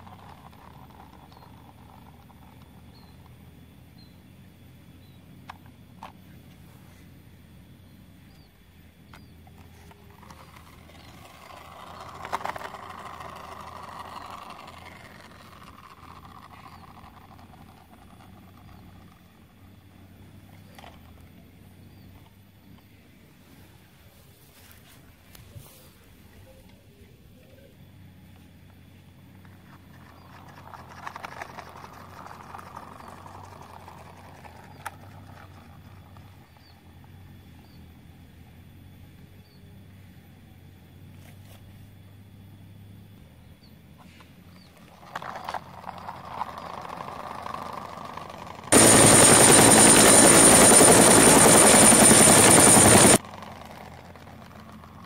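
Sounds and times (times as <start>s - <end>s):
steady low hum: 0.0s - 55.0s
plastic toy rustling: 9.6s - 18.7s, 44.8s - 48.8s
motor vehicle passing: 44.0s - 55.0s.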